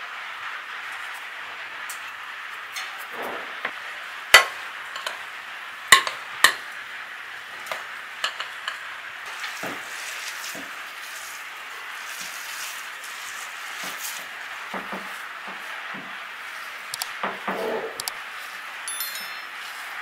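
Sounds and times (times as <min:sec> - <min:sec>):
metal spoon clinking glass bowl: 0:18.9 - 0:19.7.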